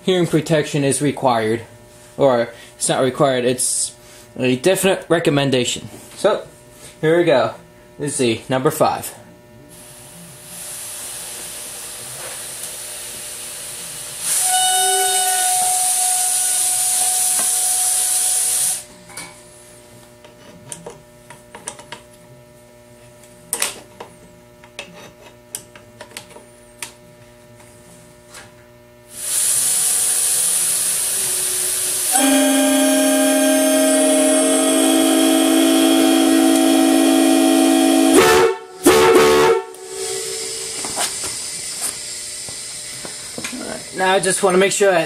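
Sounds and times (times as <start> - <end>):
air hissing through horn: 13.6 - 18.8, 29.1 - 43.7
air horn note: 14.2 - 18.4, 31.2 - 41.2.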